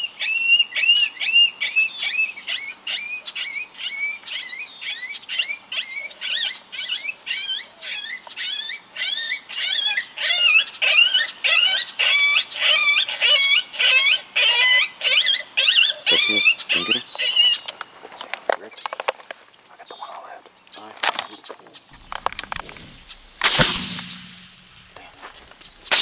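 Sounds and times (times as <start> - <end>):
whining predator calls: 10.4 - 17.6.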